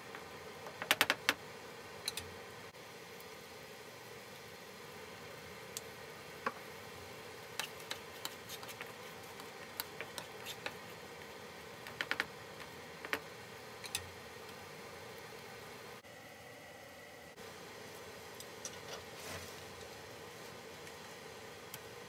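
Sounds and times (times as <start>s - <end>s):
sauce simmering in a pan: 2.7s - 16.0s.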